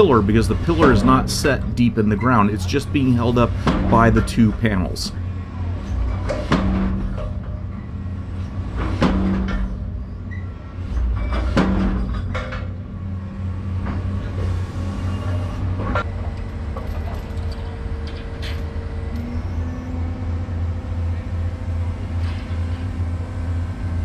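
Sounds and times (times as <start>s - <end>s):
excavator engine: 0.0s - 5.8s.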